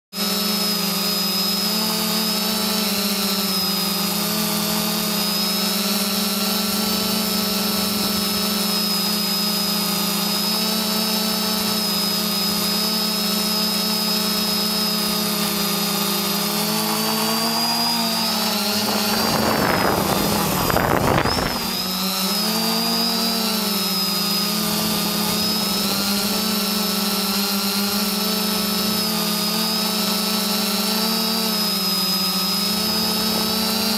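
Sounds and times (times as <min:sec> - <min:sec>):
drone propellers whining: 0:00.2 - 0:33.9.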